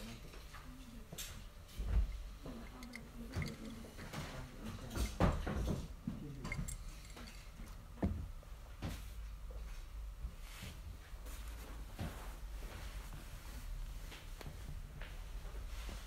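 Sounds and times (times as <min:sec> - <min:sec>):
glass and objects knocking on wood: 0:02.5 - 0:03.8.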